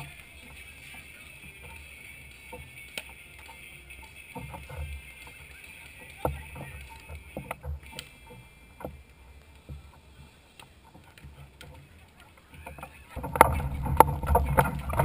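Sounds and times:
wind buffeting microphone: 0:04.4 - 0:15.0.

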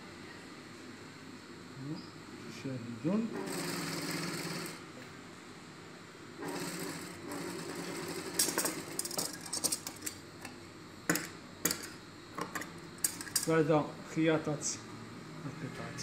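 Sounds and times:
sewing machine running: 0:03.3 - 0:04.8, 0:06.4 - 0:09.6.

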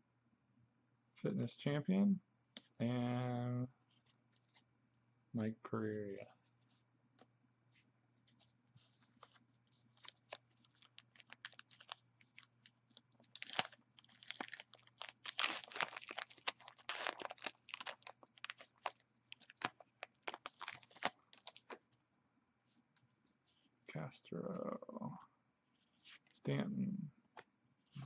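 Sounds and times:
wrapper crinkling and tearing: 0:09.3 - 0:21.8.

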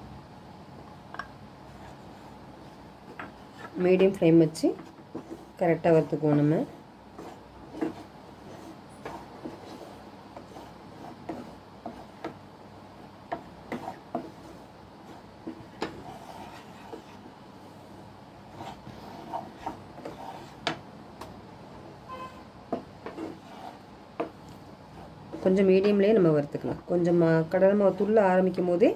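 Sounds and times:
wooden spatula scraping a pan: 0:01.7 - 0:12.4, 0:13.3 - 0:20.8, 0:22.1 - 0:26.0, 0:27.4 - 0:28.7.

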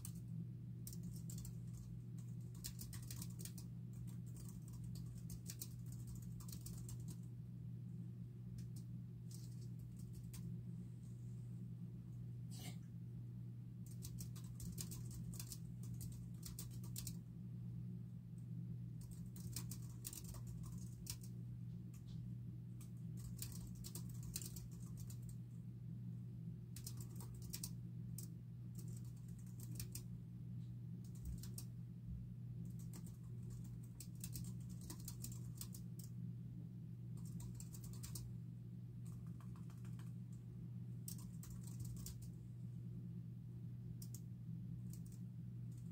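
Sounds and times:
steady low hum: 0:00.0 - 0:45.9
typing on computer keyboard: 0:00.8 - 0:07.3, 0:13.9 - 0:17.2, 0:19.0 - 0:21.3, 0:22.8 - 0:25.4, 0:26.8 - 0:30.1, 0:31.0 - 0:31.7, 0:32.7 - 0:36.1, 0:37.2 - 0:38.3, 0:39.0 - 0:40.2, 0:41.1 - 0:42.3, 0:44.0 - 0:44.3, 0:44.9 - 0:45.2.

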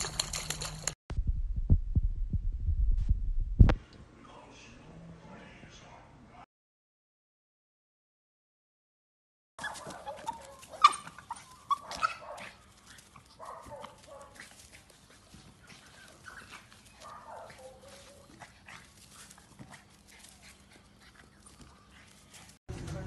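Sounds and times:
small dog barking and yelping: 0:09.6 - 0:22.0.

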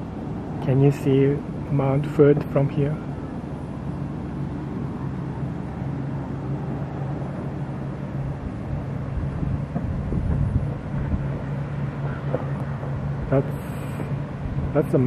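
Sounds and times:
steady low hum: 0:00.0 - 0:15.0
wind buffeting the microphone: 0:03.3 - 0:14.8.

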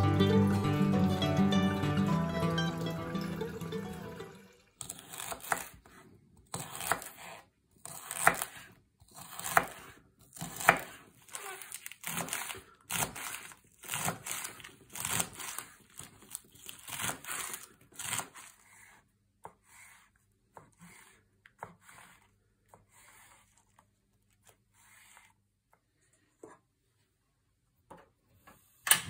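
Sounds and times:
knife cutting mushrooms: 0:04.8 - 0:23.6
knife slicing lettuce on board: 0:04.8 - 0:25.3.

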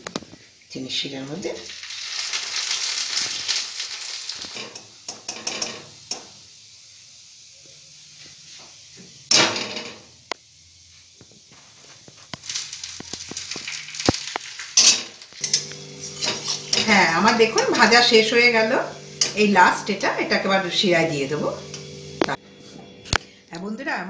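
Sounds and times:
batter sizzling in frying oil: 0:00.0 - 0:22.4
spatula scraping and tapping pan: 0:12.0 - 0:17.9.

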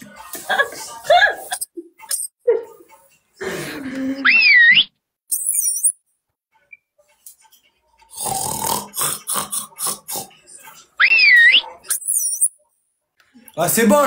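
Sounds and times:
high chirp: 0:04.2 - 0:06.1, 0:11.0 - 0:12.6
wavering whistle: 0:11.0 - 0:12.5.

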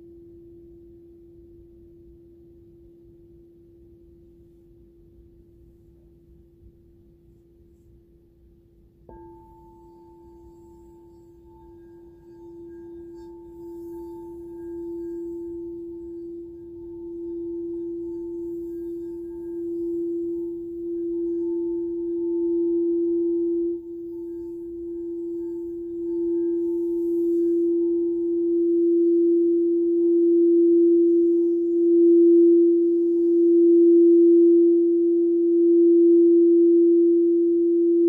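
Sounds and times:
crystal singing bowl tone: 0:09.1 - 0:38.0.

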